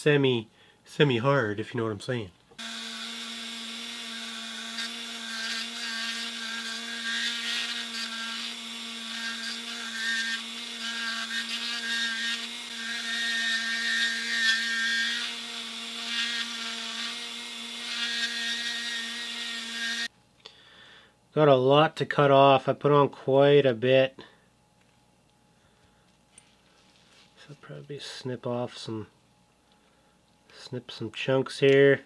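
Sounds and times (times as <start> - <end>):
rotary tool grinding epoxy: 2.6 - 20.1.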